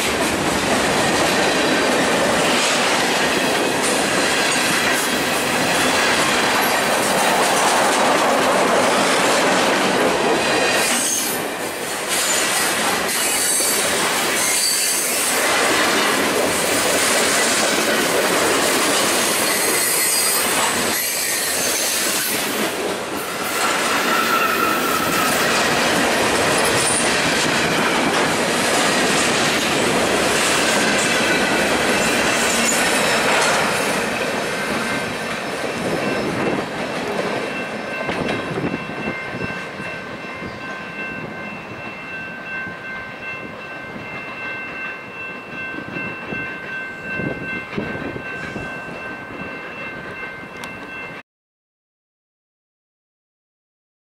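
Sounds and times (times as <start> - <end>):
train wheels clattering over rails: 0.0 - 14.2, 15.0 - 38.8.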